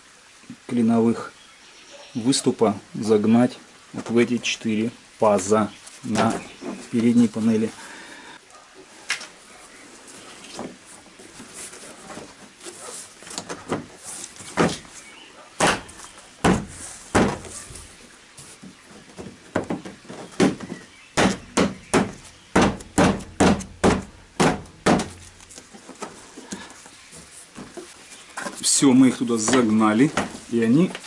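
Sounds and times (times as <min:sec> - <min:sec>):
palms thumping plastic bumper: 0:14.5 - 0:14.9, 0:15.6 - 0:17.6, 0:19.0 - 0:26.2, 0:29.4 - 0:30.4.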